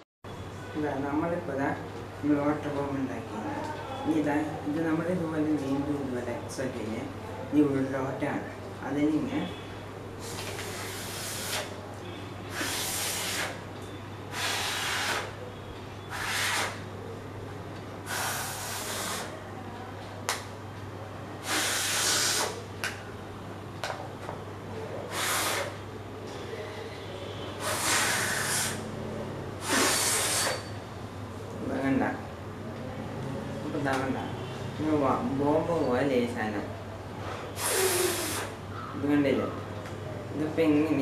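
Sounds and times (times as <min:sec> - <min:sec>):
breath blown in hissing puffs: 0:10.2 - 0:11.8, 0:12.5 - 0:13.6, 0:14.3 - 0:15.4, 0:16.1 - 0:16.8, 0:18.0 - 0:19.4, 0:21.4 - 0:22.6, 0:25.1 - 0:25.8, 0:27.6 - 0:28.9, 0:29.6 - 0:30.7, 0:37.2 - 0:38.6.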